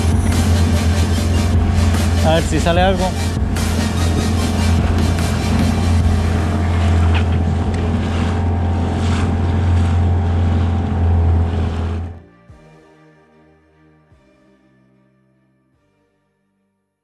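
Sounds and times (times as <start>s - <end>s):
motorboat engine running: 0.0s - 12.2s
water noise: 0.0s - 12.2s
wind: 0.0s - 12.2s.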